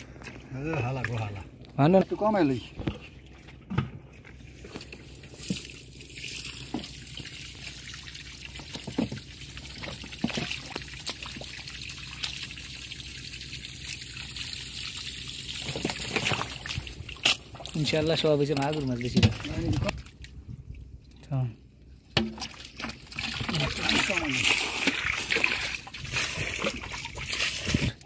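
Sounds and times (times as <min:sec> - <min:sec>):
small splashes: 0:04.4 - 0:20.4, 0:22.1 - 0:28.0
water trickling and dripping: 0:04.7 - 0:27.9.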